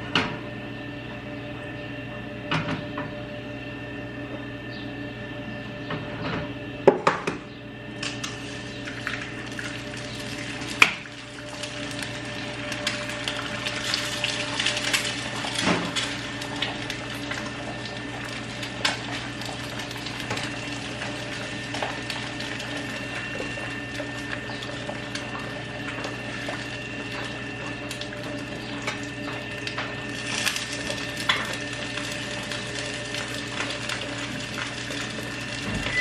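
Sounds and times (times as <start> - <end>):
egg frying in oil: 8.0 - 36.0
oil popping and crackling: 8.0 - 36.0.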